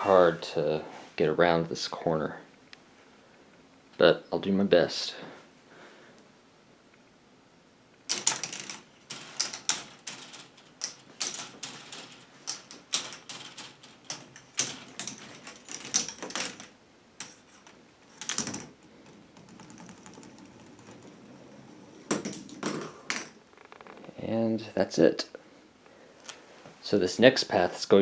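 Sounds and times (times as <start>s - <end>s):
plastic ball clattering on track: 8.0s - 23.6s
ball rolling down helix: 8.1s - 24.0s.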